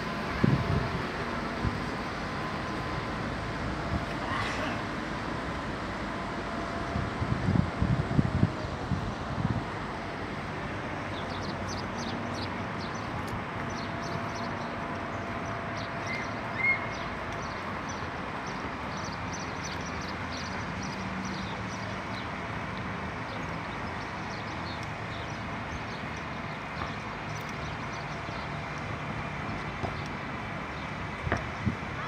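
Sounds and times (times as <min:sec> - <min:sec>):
outdoor background noise: 0:00.0 - 0:32.0
small birds chirping: 0:11.1 - 0:22.4, 0:23.2 - 0:28.8.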